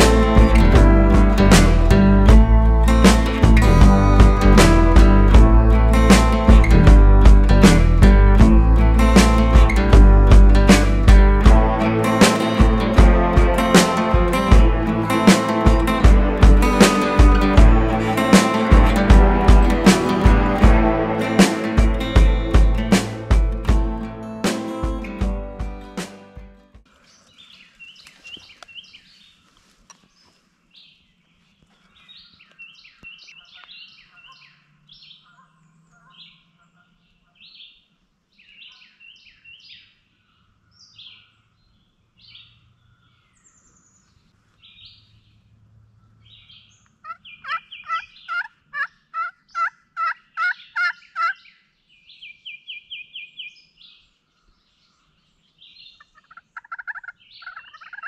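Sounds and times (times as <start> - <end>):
small birds chirping: 26.9 - 58.0
turkey calling: 46.3 - 51.6, 56.0 - 58.0.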